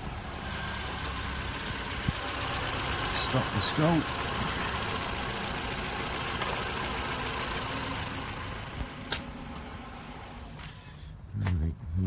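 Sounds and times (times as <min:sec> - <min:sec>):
diesel engine idling: 0:00.0 - 0:11.1.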